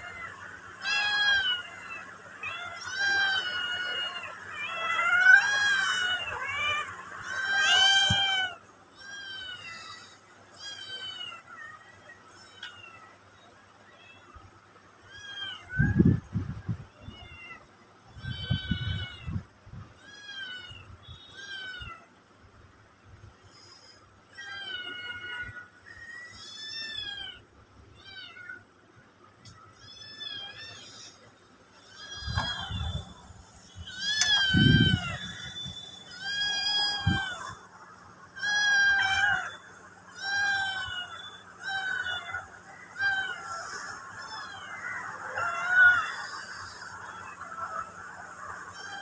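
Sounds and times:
cat meowing: 31.8 - 37.6, 38.4 - 42.4.

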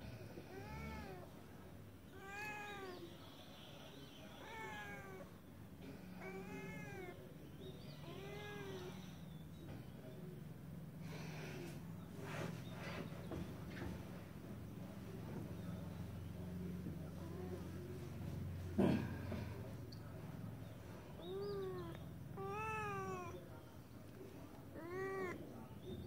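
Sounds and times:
cat meowing: 0.5 - 1.2, 2.2 - 3.0, 4.4 - 5.3, 6.2 - 7.2, 21.2 - 23.4, 24.7 - 25.4.

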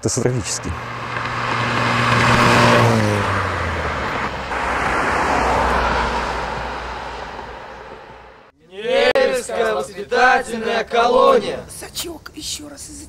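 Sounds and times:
traffic noise: 0.0 - 13.0
car driving past: 0.1 - 8.5.

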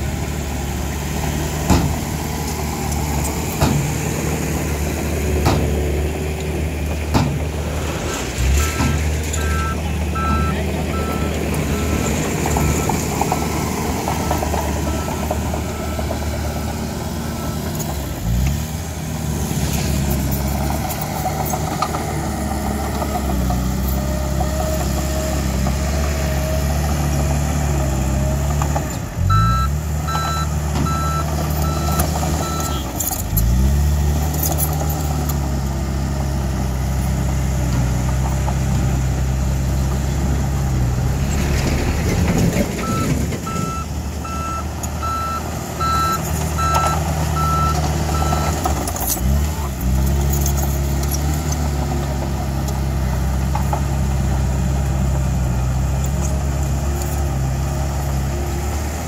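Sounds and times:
bulldozer diesel engine revving: 0.0 - 59.0
reversing alarm beeping: 8.6 - 16.7, 29.3 - 33.0, 42.8 - 48.6.

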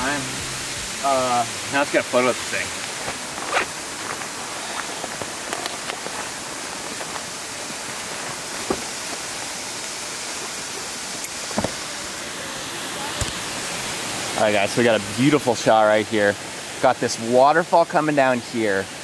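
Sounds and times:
waterfall rushing: 0.0 - 19.0
backpack knocks and rustles: 8.6 - 9.0, 11.5 - 11.8.

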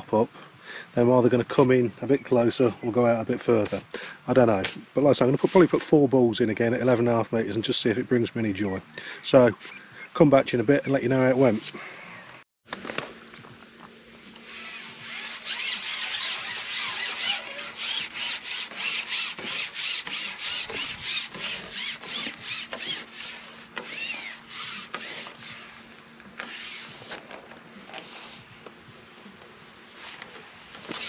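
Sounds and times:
fishing pole sections rubbing and squeaking: 14.2 - 28.5, 29.9 - 31.0.

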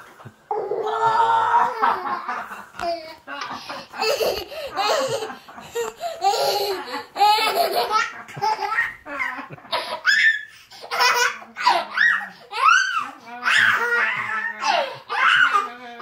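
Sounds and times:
young child laughing: 0.8 - 12.8.

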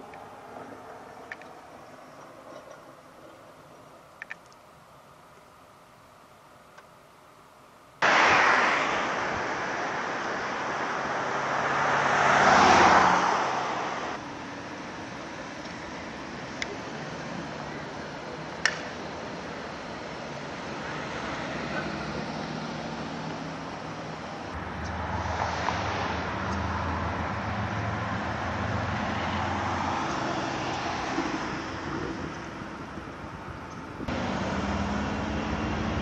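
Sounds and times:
steady traffic noise: 0.0 - 36.0
suv engine driving by: 8.0 - 14.3.

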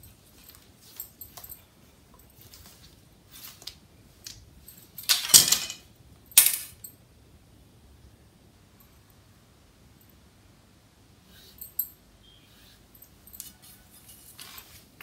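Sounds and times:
cloth rustling: 0.0 - 5.0, 11.3 - 15.0.

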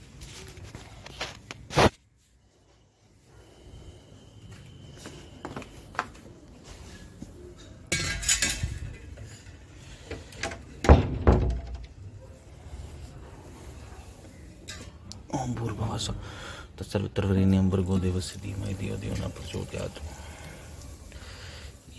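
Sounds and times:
metal bowl clinking and knocking: 7.9 - 9.1.

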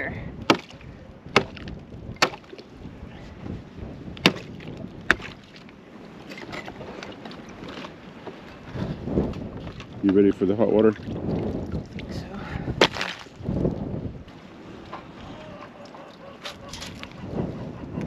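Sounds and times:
ice cracking under blows: 12.8 - 13.4.

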